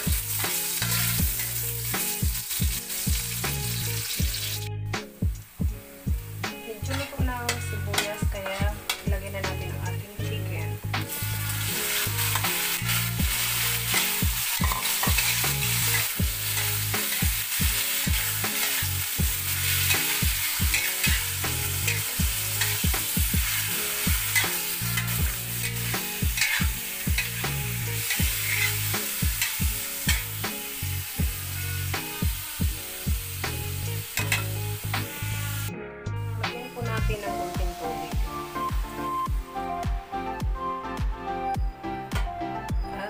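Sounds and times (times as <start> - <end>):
metal spatula scraping a wok: 0.0 - 3.2, 6.8 - 9.1, 11.0 - 30.8, 34.1 - 35.7
chicken sizzling in hot oil: 0.0 - 35.7, 36.8 - 39.6.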